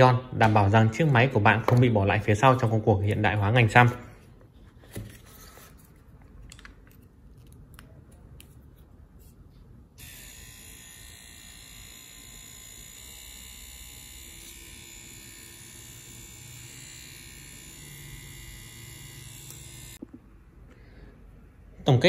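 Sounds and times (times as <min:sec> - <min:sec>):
tattoo machine buzzing: 0:10.0 - 0:20.0.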